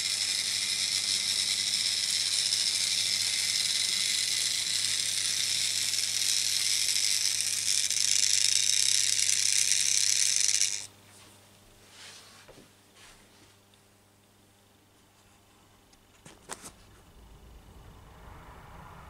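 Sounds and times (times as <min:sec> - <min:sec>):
model train rattling on track: 0:00.0 - 0:10.9
low hum: 0:16.8 - 0:19.0.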